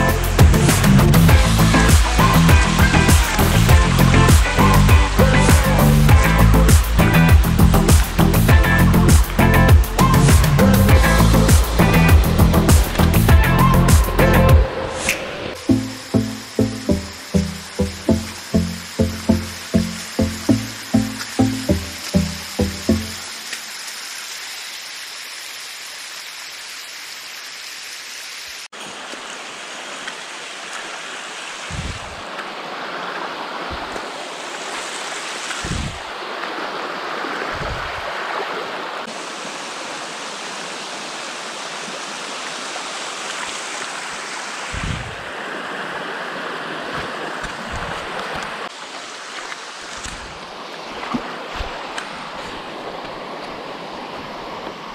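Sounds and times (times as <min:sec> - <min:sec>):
stream rushing over rocks: 0:00.0 - 0:54.9.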